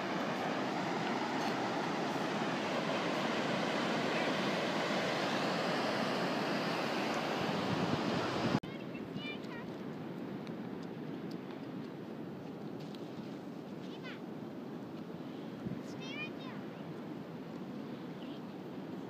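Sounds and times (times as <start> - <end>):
ocean surf roaring: 0.0 - 8.6.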